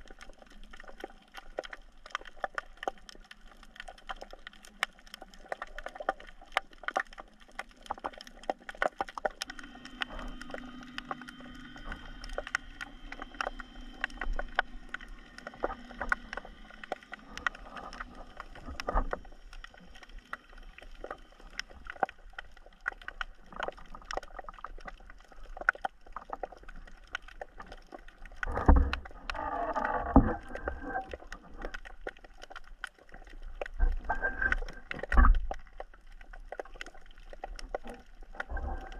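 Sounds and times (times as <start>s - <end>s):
underwater crackle of clicks: 0.0s - 38.9s
steady hum: 9.2s - 22.0s.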